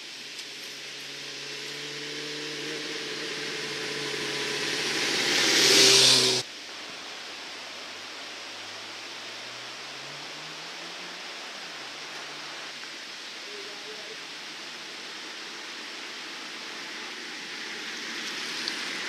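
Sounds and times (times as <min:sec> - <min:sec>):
steady hiss: 0:00.0 - 0:19.0
motorcycle engine approaching: 0:00.3 - 0:06.5.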